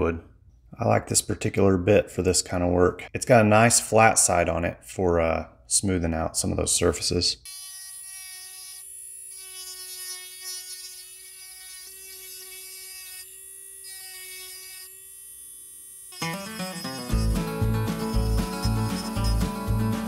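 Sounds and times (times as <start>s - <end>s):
rotary tool whining on wood: 7.5s - 20.0s
background music: 16.3s - 20.0s.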